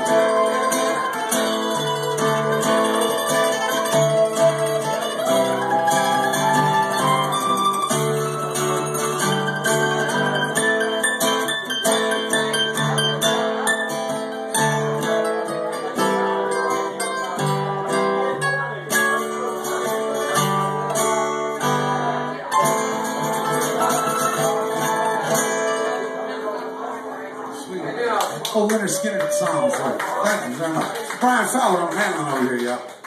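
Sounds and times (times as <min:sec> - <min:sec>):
mandolin picking: 0:00.0 - 0:28.0
acoustic guitar playing: 0:00.0 - 0:28.1.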